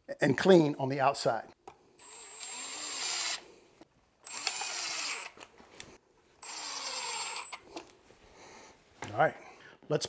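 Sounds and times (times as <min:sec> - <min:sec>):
power driver driving screws: 0:02.0 - 0:03.4, 0:04.2 - 0:05.4, 0:06.4 - 0:07.6.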